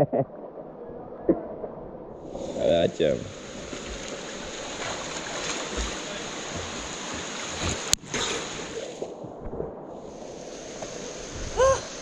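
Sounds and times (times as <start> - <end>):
swimmer splashing water: 3.3 - 9.0.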